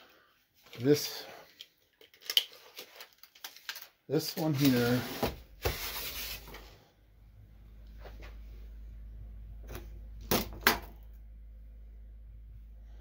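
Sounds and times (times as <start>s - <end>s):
steady low hum: 5.4s - 13.0s.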